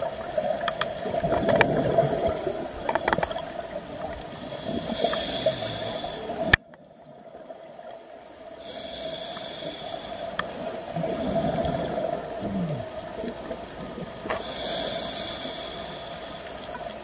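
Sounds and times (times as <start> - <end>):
underwater bubbles: 0.0 - 17.0
diver breathing underwater: 4.2 - 6.6, 8.6 - 17.0.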